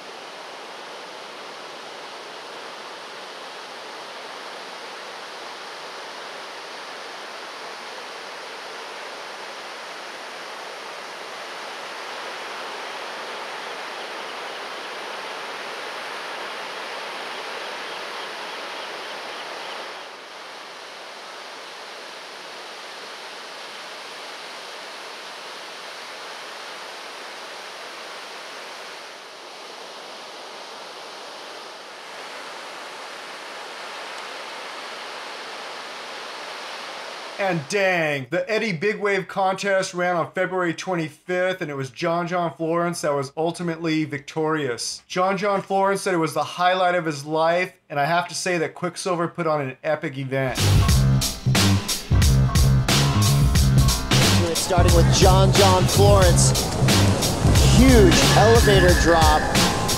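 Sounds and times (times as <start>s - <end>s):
ocean surf breaking: 0.0s - 37.8s, 53.8s - 59.9s.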